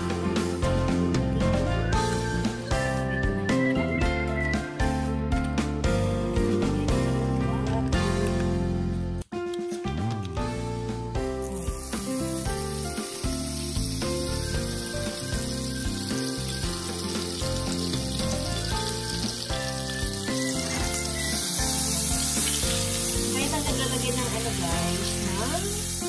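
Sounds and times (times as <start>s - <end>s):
background music: 0.0s - 26.0s
butter sizzling in a skillet: 11.4s - 26.0s.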